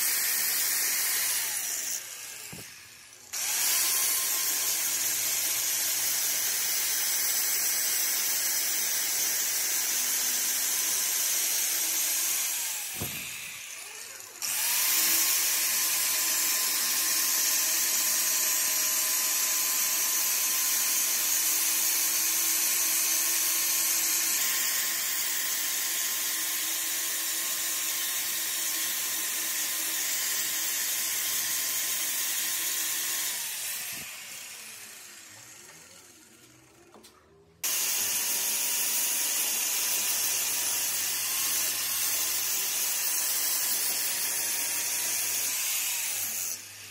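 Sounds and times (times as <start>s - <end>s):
angle grinder grinding metal: 0.0s - 7.7s, 10.8s - 17.3s, 29.0s - 36.8s.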